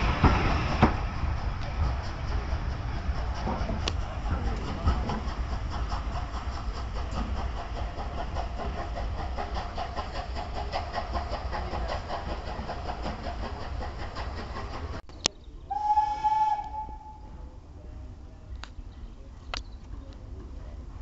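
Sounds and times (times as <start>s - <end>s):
train rumbling and clattering: 0.0s - 21.0s
steam locomotive whistle: 15.7s - 17.4s.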